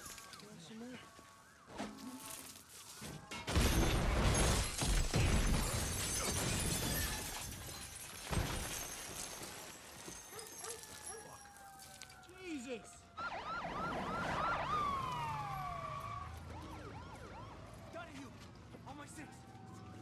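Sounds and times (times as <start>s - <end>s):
debris clattering down: 2.1s - 11.2s
glass shattering: 2.2s - 12.1s.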